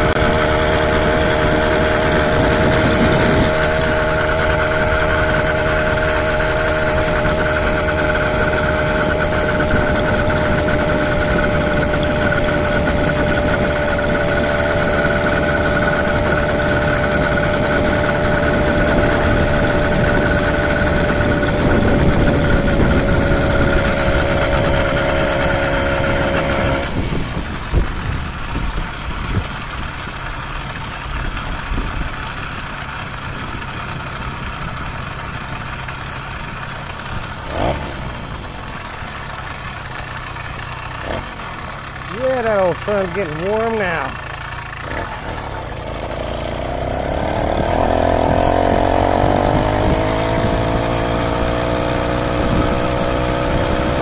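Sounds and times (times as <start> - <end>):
wind on microphone: 0.0 - 4.1, 17.1 - 25.6, 47.7 - 54.0
road noise: 0.0 - 54.0
two-stroke engine running: 0.0 - 54.0.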